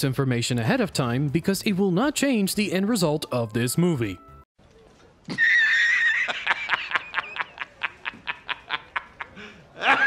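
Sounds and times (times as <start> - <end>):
man laughing heartily: 5.3 - 10.0.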